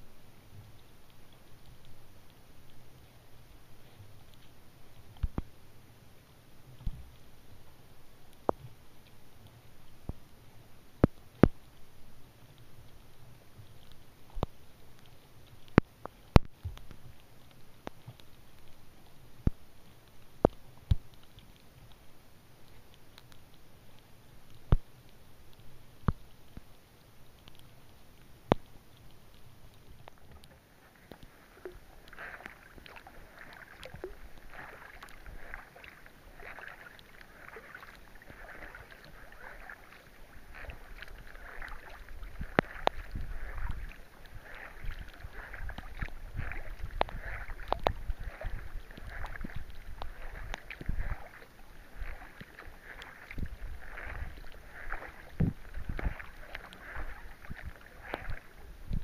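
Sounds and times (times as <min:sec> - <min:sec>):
kayak paddle splashing: 0:28.4 - 0:59.0.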